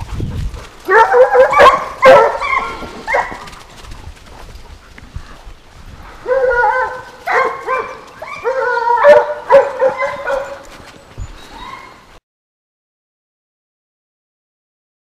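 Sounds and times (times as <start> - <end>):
hounds baying: 0.0 - 3.6, 6.0 - 12.0.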